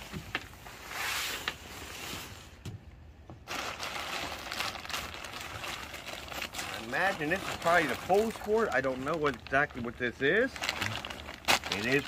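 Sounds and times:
plastic bags rustling: 3.4 - 12.0.

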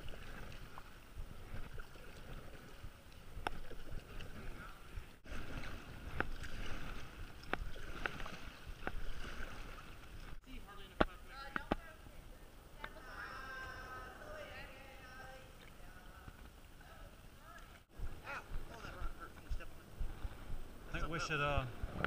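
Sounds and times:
paddle splashing in water: 0.0 - 11.8.

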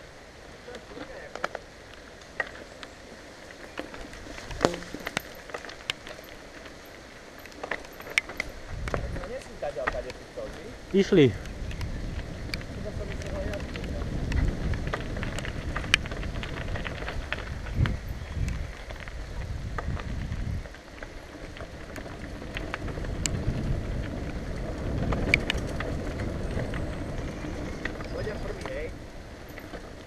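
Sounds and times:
tyres rumbling over dirt: 0.6 - 30.0
bike clicking and rattling: 0.7 - 30.0
wind buffeting microphone: 6.0 - 30.0.

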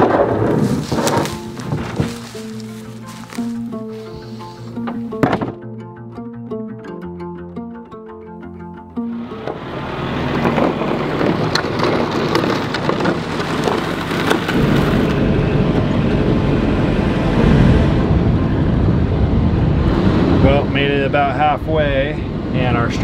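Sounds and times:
tractor engine rumble: 0.0 - 5.5, 9.0 - 23.0
rattling inside tractor cab: 9.4 - 16.8.

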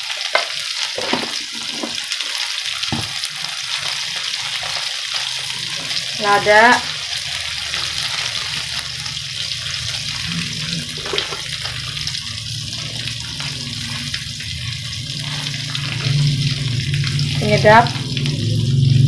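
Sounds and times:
food sizzling in hot oil: 0.0 - 19.0.

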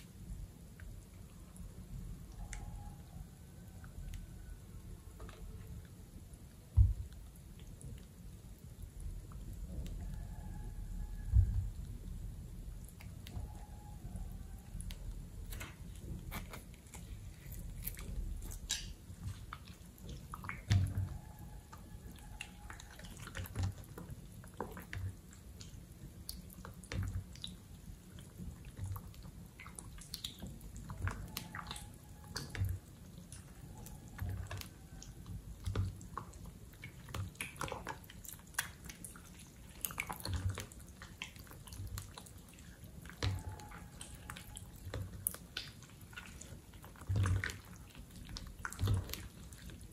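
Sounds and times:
slime squelching by hand: 12.8 - 49.9.

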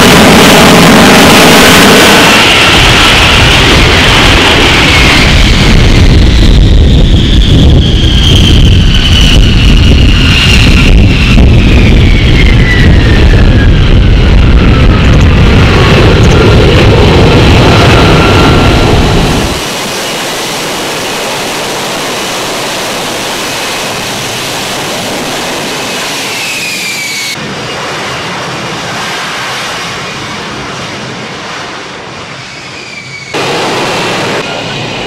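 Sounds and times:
high whines falling in pitch: 0.0 - 3.5
jet engine running loud: 0.0 - 35.0.

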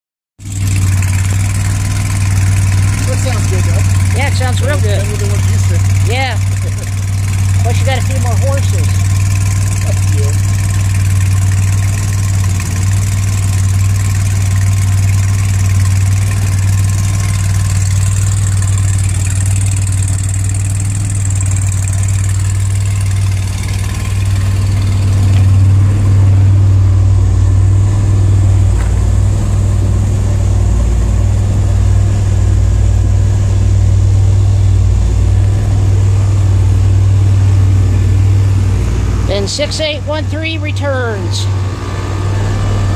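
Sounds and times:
car engine idling: 0.4 - 42.9.

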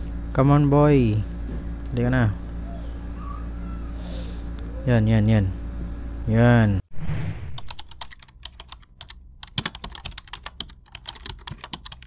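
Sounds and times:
short whoosh: 6.9 - 7.7.

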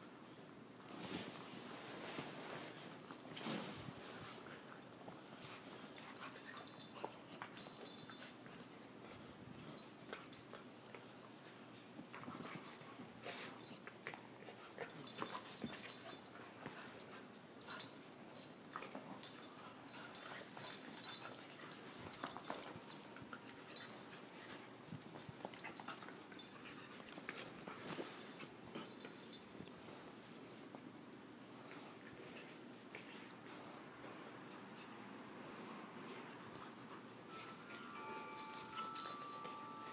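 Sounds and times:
puppies scuffling: 0.9 - 30.8.

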